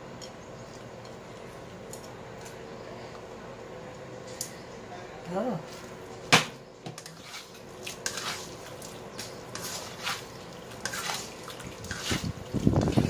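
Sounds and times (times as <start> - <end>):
spatula scraping in a wok: 7.0 - 13.0.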